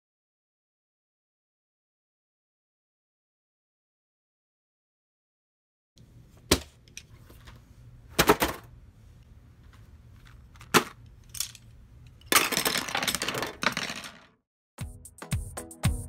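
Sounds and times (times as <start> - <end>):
pencils clattering onto box: 10.2 - 14.3.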